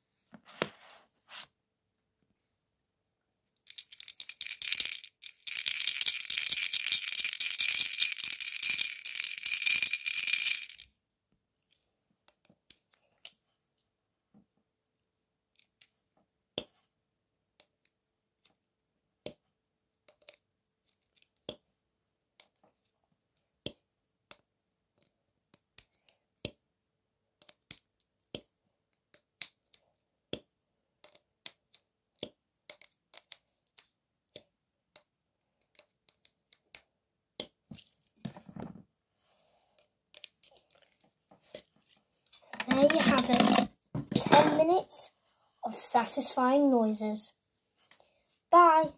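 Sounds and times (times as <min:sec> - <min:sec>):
short rustling scrape: 0:00.4 - 0:01.5.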